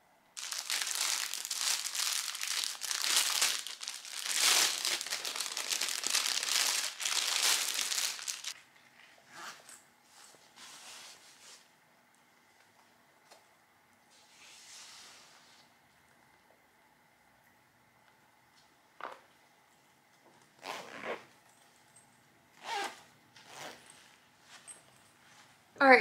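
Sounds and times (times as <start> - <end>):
plastic packaging crinkling: 0.4 - 8.6.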